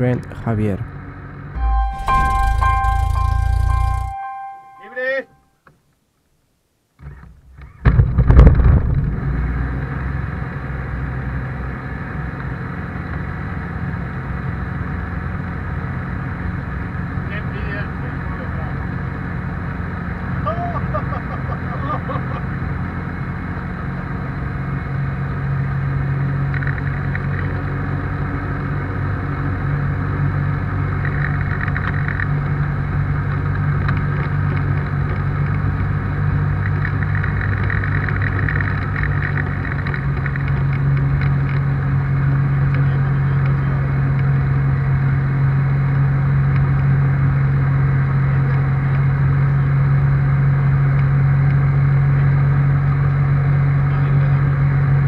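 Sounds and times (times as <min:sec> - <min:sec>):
propeller engine running: 0:01.6 - 0:04.3.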